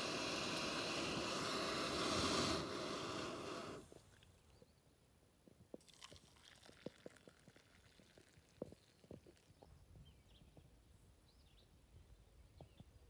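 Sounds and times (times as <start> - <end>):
camp stove burner rushing: 0.0 - 3.8
water poured into a mug: 5.8 - 9.5.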